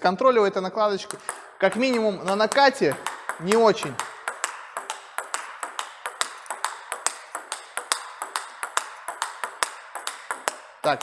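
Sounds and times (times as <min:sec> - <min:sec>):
table tennis ball clicking: 0:01.0 - 0:11.0.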